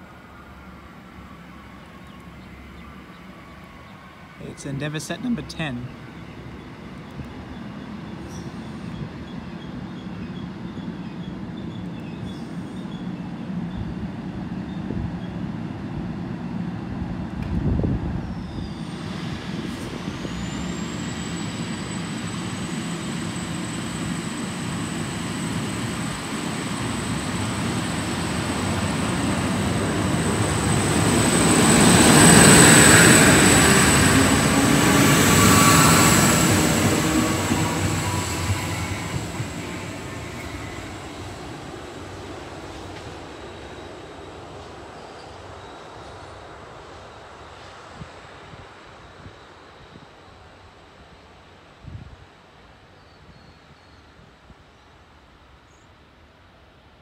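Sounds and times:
diesel train passing: 0:00.0 - 0:52.9
high whine: 0:18.6 - 0:44.6.

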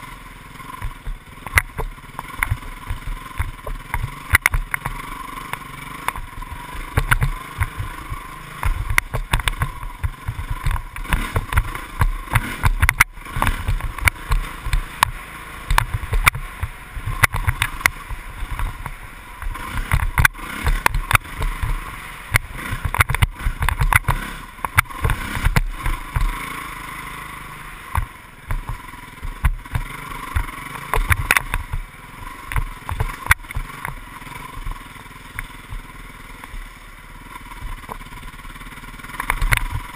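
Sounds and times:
motorcycle engine running: 0:00.0 - 0:39.9
knocks and rattles from bumps: 0:00.8 - 0:26.4, 0:27.9 - 0:34.0.

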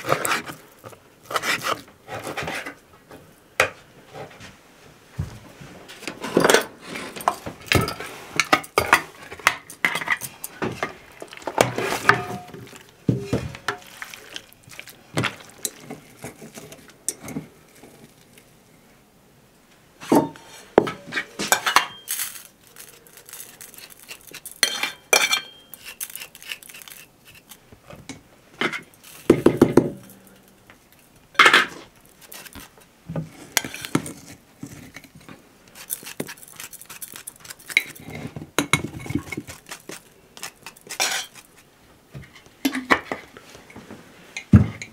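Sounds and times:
dishes clinking: 0:20.1 - 0:22.2, 0:24.5 - 0:25.8
fork scraping glass jar: 0:21.5 - 0:27.6, 0:35.8 - 0:38.3, 0:39.0 - 0:41.5.

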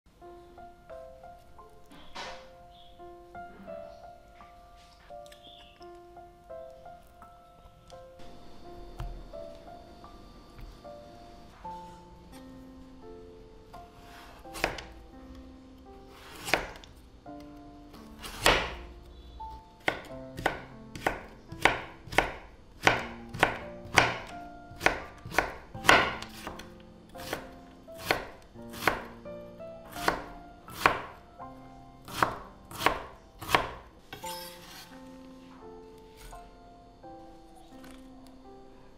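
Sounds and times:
knife cutting carrot on board: 0:14.1 - 0:14.9, 0:16.1 - 0:16.9, 0:18.2 - 0:18.8, 0:19.8 - 0:29.1, 0:30.0 - 0:31.1, 0:32.1 - 0:35.0.

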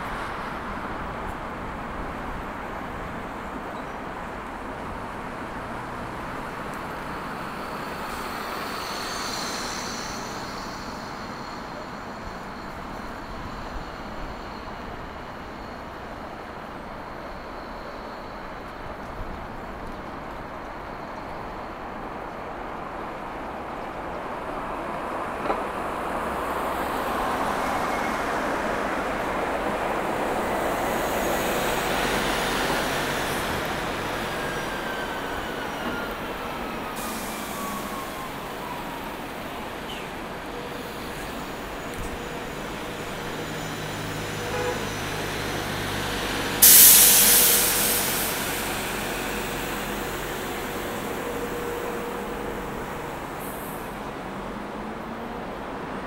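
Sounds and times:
road traffic passing: 0:00.0 - 0:17.0, 0:21.4 - 0:56.0
short loud hiss: 0:46.6 - 0:53.0.

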